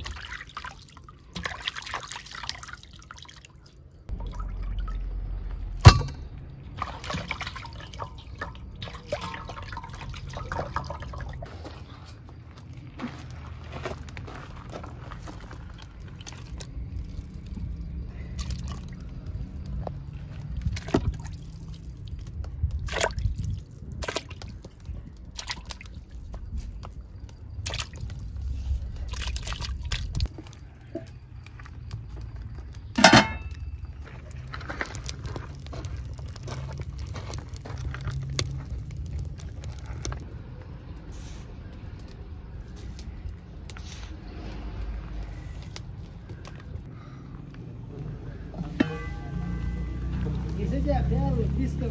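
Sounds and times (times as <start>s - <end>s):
water splashing and dripping: 0.0s - 12.0s, 12.6s - 32.1s, 34.0s - 41.1s
low rumble: 4.1s - 6.8s.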